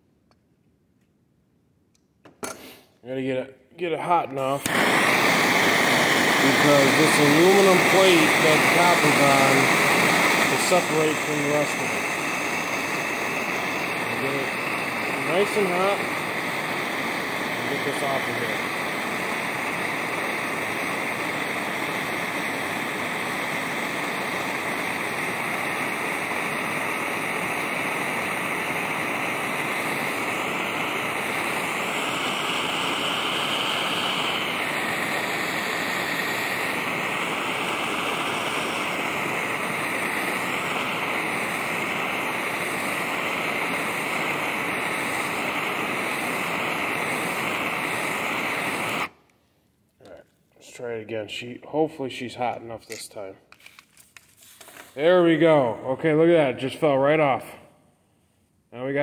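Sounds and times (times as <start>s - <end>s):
propane torch hissing: 3.8s - 49.3s, 54.3s - 57.6s.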